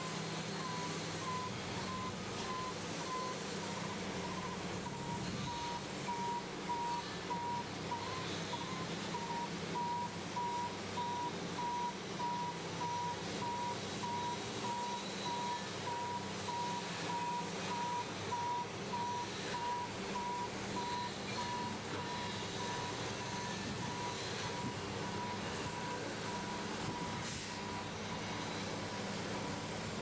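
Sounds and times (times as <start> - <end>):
water spraying from nozzles: 22.0 - 30.0.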